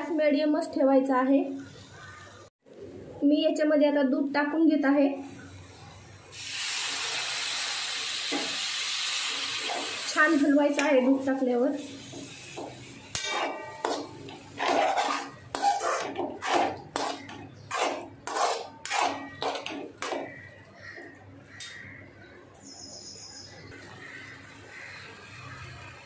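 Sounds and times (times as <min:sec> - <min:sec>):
steady background noise: 0:09.5 - 0:26.0
steel spoon scraping a pan: 0:11.8 - 0:20.2.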